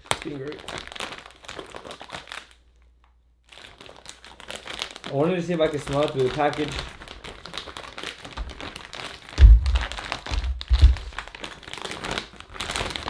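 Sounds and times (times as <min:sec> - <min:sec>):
plastic bag crinkling: 0:00.0 - 0:02.8, 0:03.4 - 0:13.0
dull low thumps: 0:09.4 - 0:11.2.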